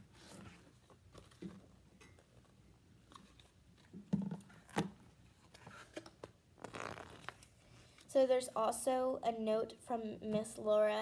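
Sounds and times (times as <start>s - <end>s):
book pages turning: 0.2s - 1.6s, 4.6s - 7.5s.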